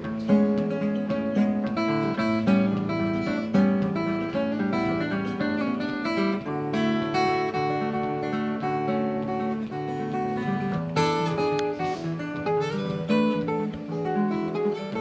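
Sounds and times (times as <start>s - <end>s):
acoustic guitar playing: 0.0s - 15.0s.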